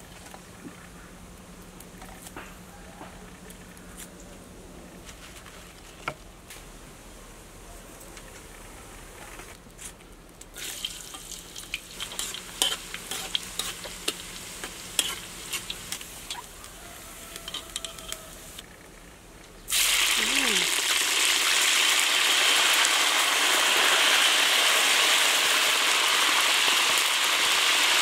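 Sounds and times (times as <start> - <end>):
oil sizzling and bubbling: 10.3 - 28.0
metal utensil clicking on pan: 12.0 - 16.4, 17.3 - 18.2.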